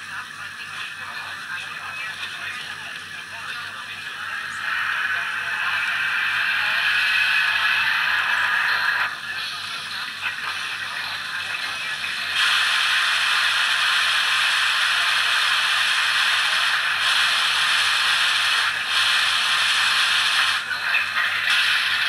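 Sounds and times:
model train steam hiss: 0:04.2 - 0:09.8, 0:10.5 - 0:22.0.

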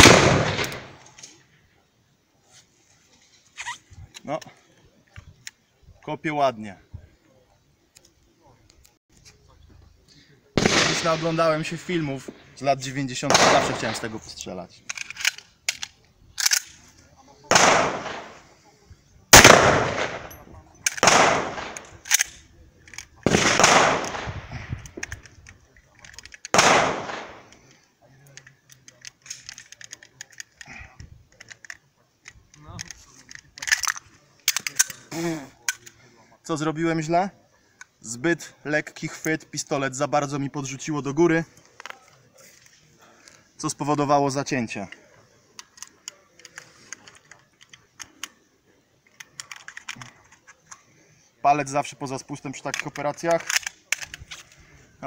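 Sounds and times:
pistol shot with echo: 0:00.0 - 0:01.0, 0:10.6 - 0:11.6, 0:13.3 - 0:14.0, 0:17.5 - 0:18.4, 0:19.3 - 0:21.9, 0:23.2 - 0:24.6, 0:26.5 - 0:27.4
metallic clicks of pistol: 0:14.8 - 0:16.8, 0:19.9 - 0:23.3, 0:24.0 - 0:27.6, 0:28.2 - 0:35.0, 0:45.6 - 0:48.4, 0:49.0 - 0:50.8, 0:52.7 - 0:54.5.

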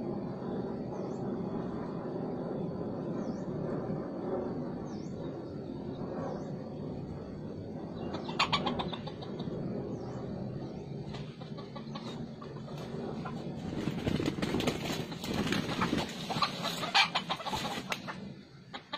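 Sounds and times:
small bird chirping: 0:07.7 - 0:13.7
chicken calling: 0:08.1 - 0:09.4, 0:14.9 - 0:18.9.

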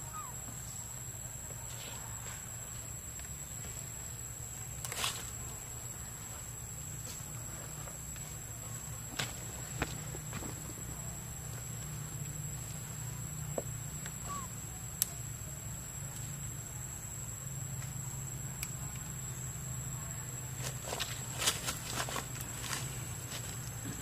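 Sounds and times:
faint bird chirp: 0:00.0 - 0:02.2, 0:14.0 - 0:14.8
continuous high-pitched whine: 0:00.0 - 0:24.0
steady low hum: 0:00.0 - 0:24.0.

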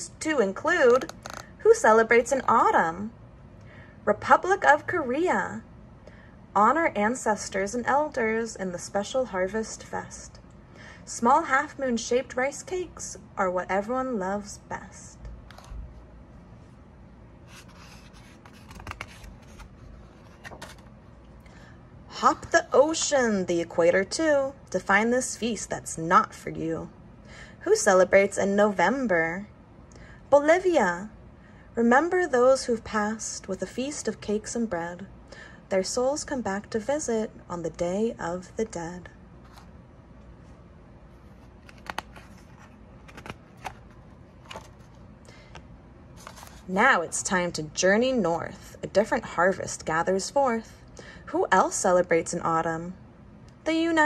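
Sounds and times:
paper crackles: 0:17.5 - 0:21.0, 0:41.2 - 0:45.0
paper page rustling: 0:17.5 - 0:21.0, 0:39.4 - 0:39.7, 0:41.2 - 0:45.0, 0:46.2 - 0:46.7.

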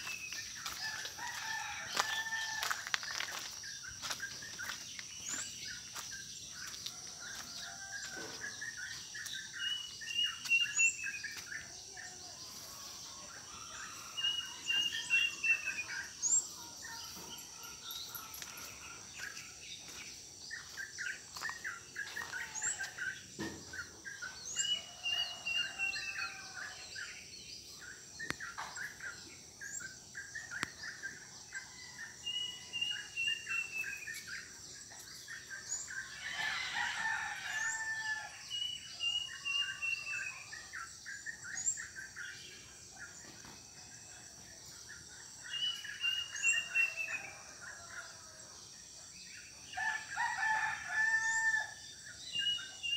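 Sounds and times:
rooster crowing: 0:00.6 - 0:03.4, 0:36.1 - 0:38.4, 0:49.8 - 0:51.8.

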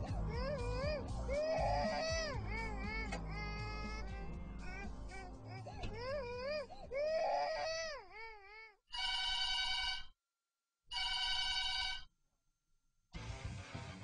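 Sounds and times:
guitar music: 0:00.0 - 0:06.1, 0:13.2 - 0:14.0
infant wailing: 0:00.0 - 0:08.8
telephone ringing: 0:08.9 - 0:10.1, 0:10.9 - 0:12.1.

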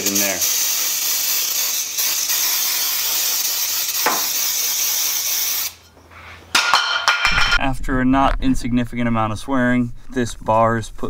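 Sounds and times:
aerosol can spraying hiss: 0:00.0 - 0:05.8.

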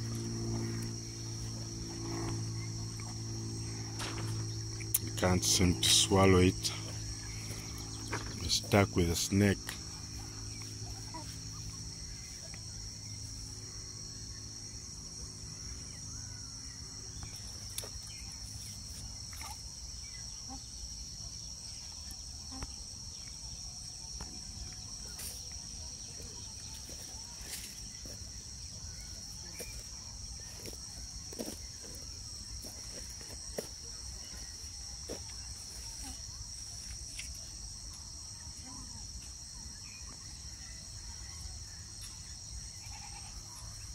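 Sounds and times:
low outdoor rumble: 0:00.0 - 0:19.4
insects chorus: 0:00.0 - 0:43.9.

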